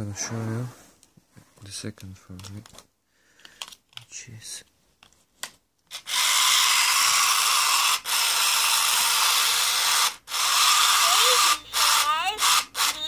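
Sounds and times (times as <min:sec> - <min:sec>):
toy motor and gearbox whirring: 0:05.9 - 0:13.0.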